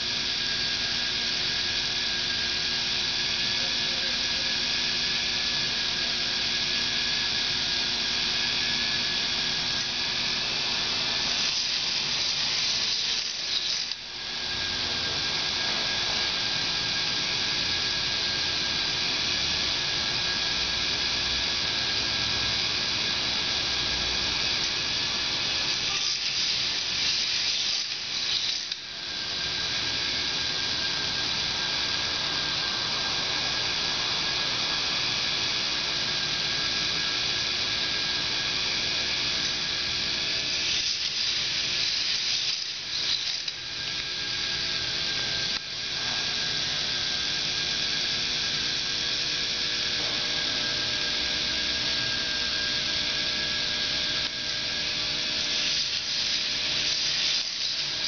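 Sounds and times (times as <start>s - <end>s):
model roller coaster clatter and whir: 8.4s - 17.0s, 23.8s - 30.9s, 39.4s - 43.6s.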